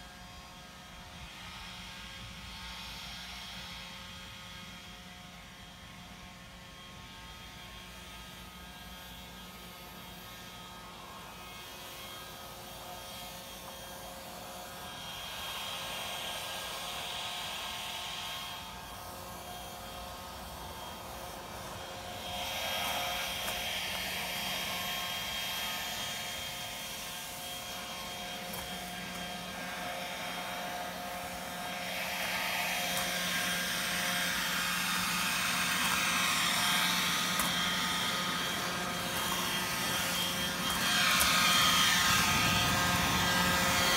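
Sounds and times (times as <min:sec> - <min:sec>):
leaf blower whining motor: 0:00.0 - 0:43.9.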